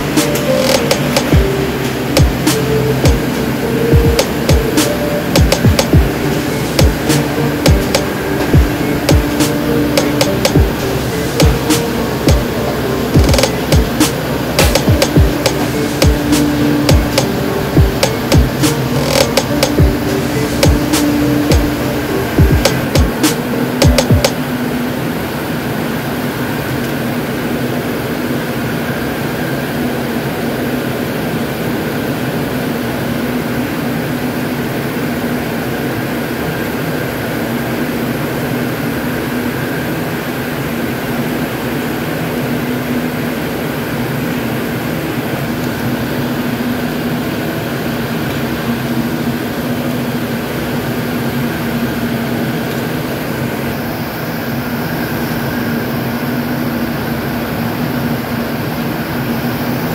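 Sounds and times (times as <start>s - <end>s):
low hum: 0.0s - 31.6s
high whine: 0.0s - 59.9s
spinning machines droning: 0.0s - 59.9s.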